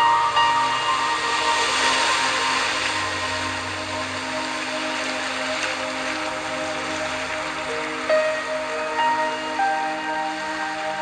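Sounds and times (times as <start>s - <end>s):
ocean surf washing on beach: 0.0s - 11.0s
soft ambient music: 0.0s - 11.0s.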